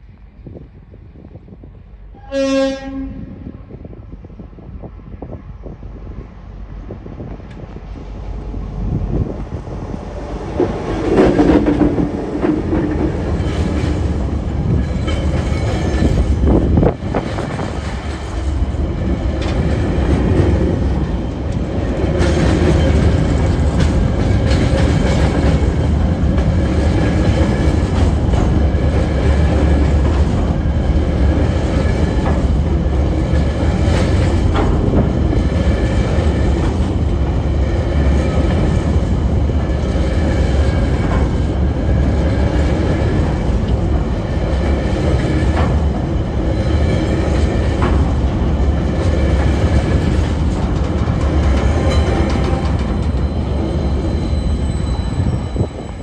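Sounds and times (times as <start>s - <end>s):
freight train rumbling past: 0.0s - 56.0s
wheels clicking over rail joints: 10.6s - 53.7s
locomotive engine tone: 50.6s - 56.0s.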